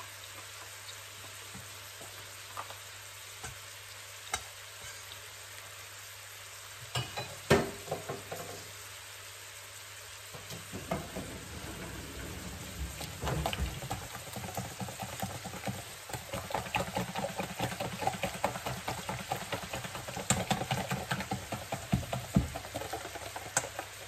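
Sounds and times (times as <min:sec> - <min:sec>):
whisk clattering in metal bowl: 0:10.8 - 0:24.0.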